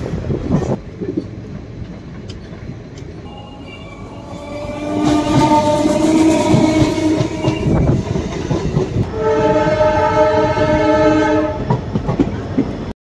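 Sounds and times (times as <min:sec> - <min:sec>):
moving train rumble and clatter: 0:00.0 - 0:13.0
train horn blowing: 0:03.3 - 0:08.3, 0:09.0 - 0:11.8.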